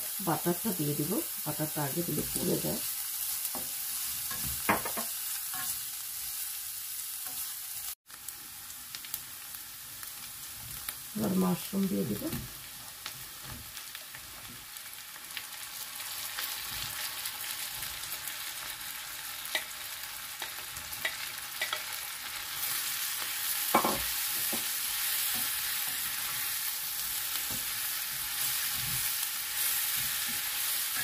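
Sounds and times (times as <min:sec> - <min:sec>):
mushrooms sizzling in a frying pan: 0:00.0 - 0:31.0
knock against a pan: 0:23.8 - 0:24.6.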